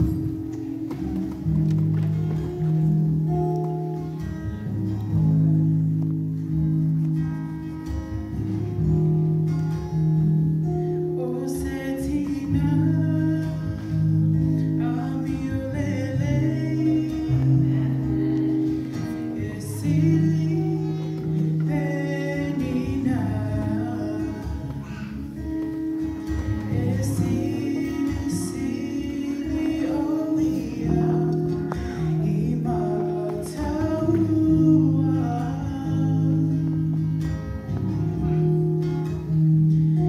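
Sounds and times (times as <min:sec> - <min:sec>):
acoustic guitar chords: 0:00.0 - 0:40.0.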